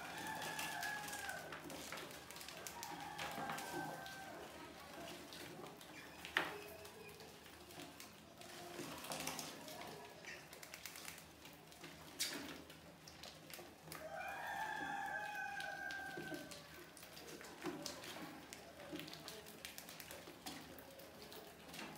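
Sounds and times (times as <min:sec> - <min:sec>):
rooster crowing: 0:00.0 - 0:01.6, 0:02.7 - 0:04.4, 0:14.0 - 0:16.6
rats scrabbling on plastic: 0:00.0 - 0:21.9.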